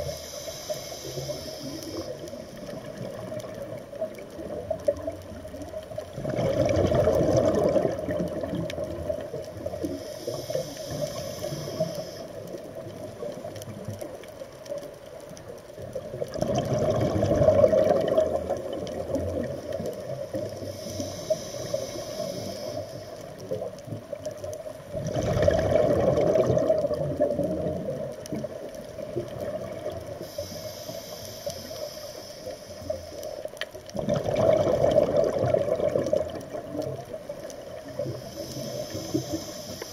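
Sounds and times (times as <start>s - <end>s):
regulator inhaling hiss: 0.0s - 3.4s, 9.5s - 14.2s, 19.1s - 23.7s, 30.0s - 33.8s, 37.5s - 39.9s
regulator bubbling exhalation: 6.2s - 9.0s, 16.3s - 19.5s, 25.0s - 27.8s, 34.0s - 36.8s.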